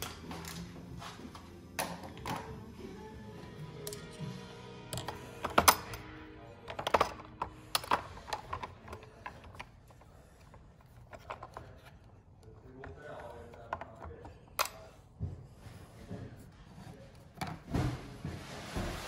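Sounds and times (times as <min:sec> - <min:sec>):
tools clacking on plastic holder: 0:04.9 - 0:14.9.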